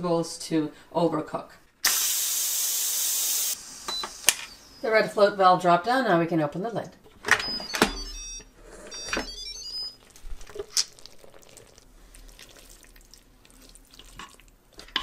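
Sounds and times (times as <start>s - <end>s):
high electronic beeps: 7.4s - 10.0s.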